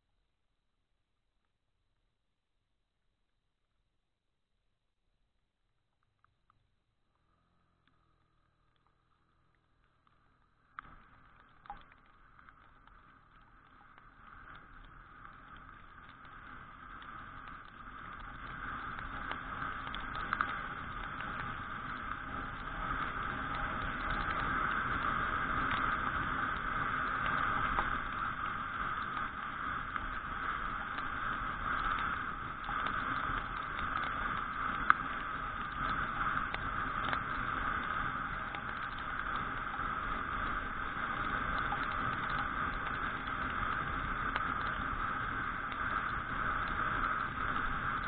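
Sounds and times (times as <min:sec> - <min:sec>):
tyres on wet road: 0:06.1 - 0:48.0
scooter engine running: 0:07.2 - 0:09.7.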